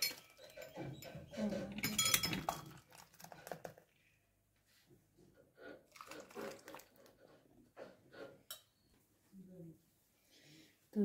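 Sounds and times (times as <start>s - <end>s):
soft kitchen scrapes and knocks: 0.0s - 3.6s, 4.6s - 9.1s.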